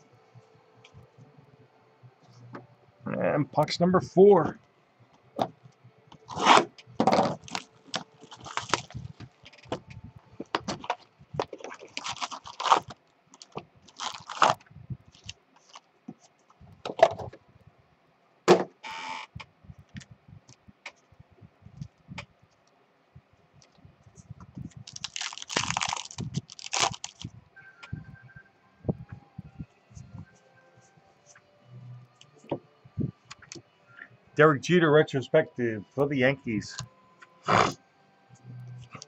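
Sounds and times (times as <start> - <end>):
foil pack tearing open: 6.2 - 9.8, 10.6 - 15.8, 24.9 - 27.2
cardboard and foil packs rustling: 6.2 - 15.9, 24.7 - 27.3.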